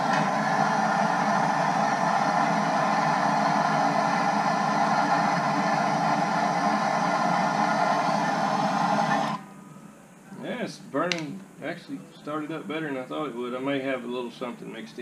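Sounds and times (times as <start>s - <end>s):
propane torch hissing: 0.0s - 9.4s.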